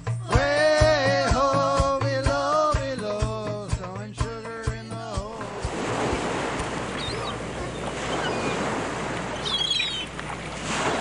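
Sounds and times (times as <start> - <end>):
person singing: 0.1 - 5.7
ocean waves and surf: 5.0 - 11.0
faint bird cries: 6.9 - 8.7, 9.3 - 10.2.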